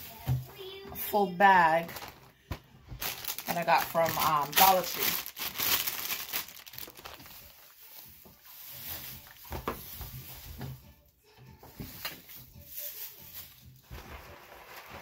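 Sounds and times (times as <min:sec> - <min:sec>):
plastic bag crinkling: 0:01.8 - 0:02.4, 0:03.0 - 0:10.4, 0:12.0 - 0:15.0
shredded grass rustling: 0:03.3 - 0:10.8, 0:11.8 - 0:15.0.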